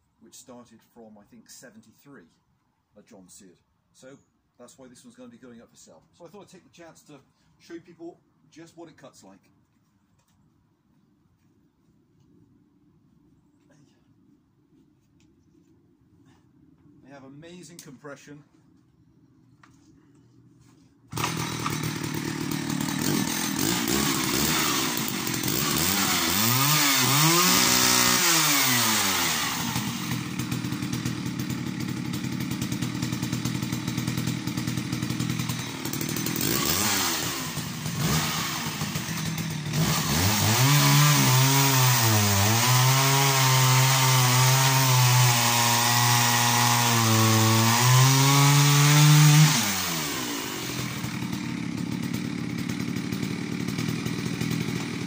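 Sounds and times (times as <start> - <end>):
chainsaw revving and cutting: 21.1 - 55.0.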